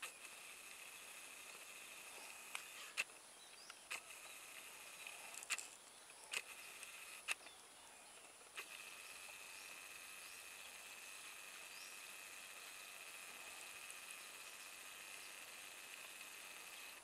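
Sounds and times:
high insect hum: 0.0 - 17.0
parakeets calling: 11.6 - 12.7.

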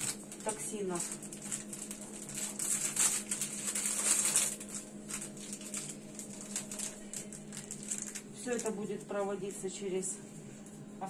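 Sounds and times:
gloved hands rustling supplies: 0.0 - 9.1
low electrical hum: 0.0 - 11.0.

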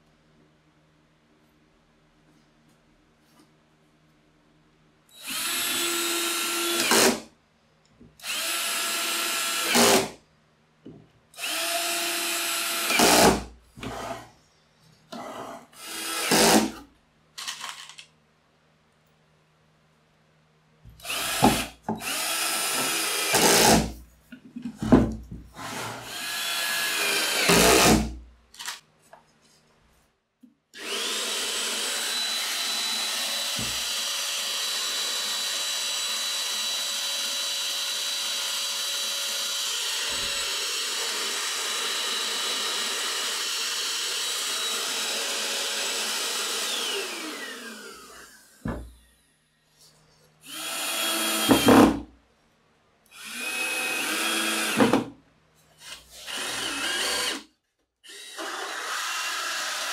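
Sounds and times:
cordless drill driving screws: 5.2 - 7.2, 8.2 - 10.1, 11.4 - 13.4, 15.8 - 16.8, 21.0 - 23.9, 26.0 - 28.7, 30.8 - 48.6, 50.4 - 52.0, 53.1 - 54.9, 55.8 - 57.4, 58.0 - 59.9.

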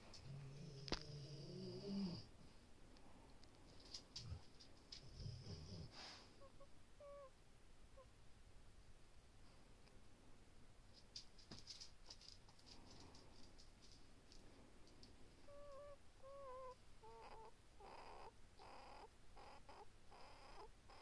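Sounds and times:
faint breathing: 4.4 - 6.6
short breathy puffs: 5.8 - 6.4.

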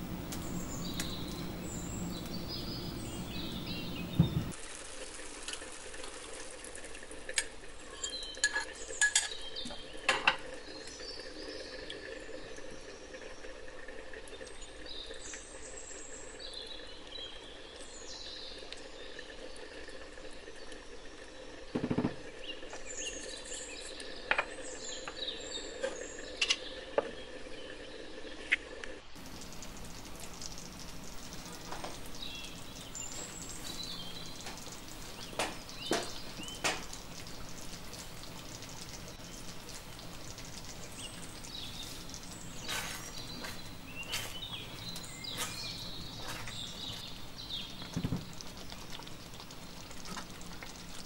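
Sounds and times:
sauce simmering and sizzling: 0.0 - 8.9, 29.1 - 51.0
deep clunk: 4.0 - 4.6.

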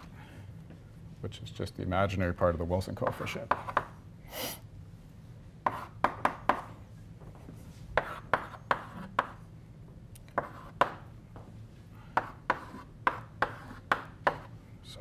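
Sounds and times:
chalk tapping on blackboard: 3.0 - 4.0, 5.6 - 6.7, 8.0 - 9.4, 10.4 - 11.5, 12.2 - 14.6.

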